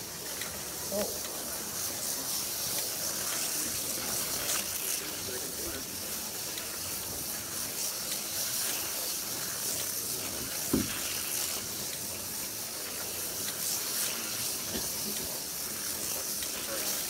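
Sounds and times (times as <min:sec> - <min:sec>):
slot car motors hissing: 0:00.0 - 0:17.0.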